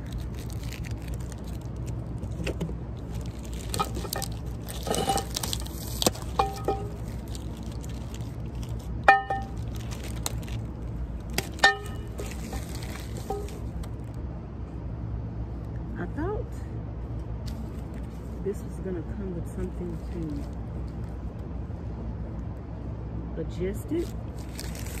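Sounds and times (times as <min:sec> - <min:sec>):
plastic wrapping rustling: 0:00.0 - 0:14.2, 0:24.0 - 0:25.0
steady low hum: 0:00.0 - 0:25.0.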